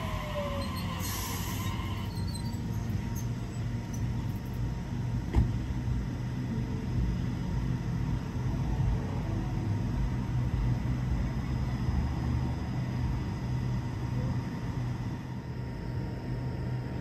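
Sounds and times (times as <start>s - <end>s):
electric train motor whine: 0.0s - 5.1s
low hum of standing train: 0.0s - 17.0s.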